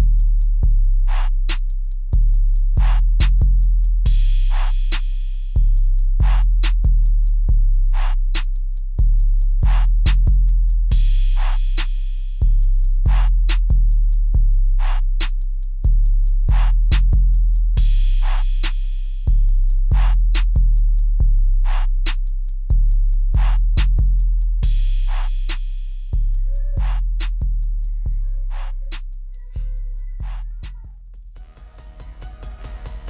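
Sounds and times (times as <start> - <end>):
deep bass line: 0.0 - 33.0
drum machine beat: 0.0 - 33.0.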